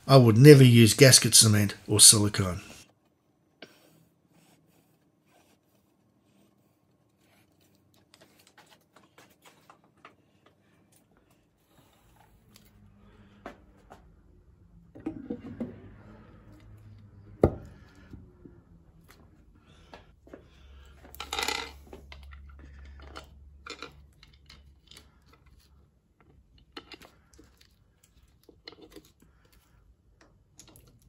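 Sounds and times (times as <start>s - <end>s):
faint clicks and scrapes: 2.8s - 14.1s, 17.8s - 31.0s.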